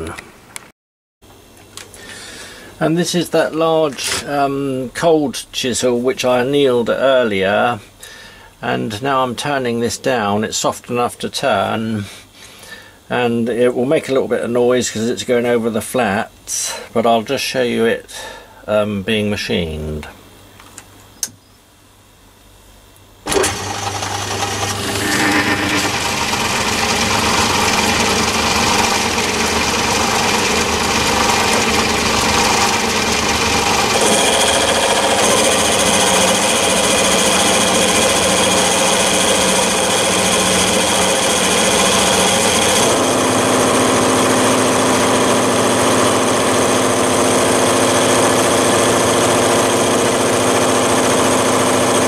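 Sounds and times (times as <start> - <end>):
metal lathe cutting steel: 23.3 - 52.0.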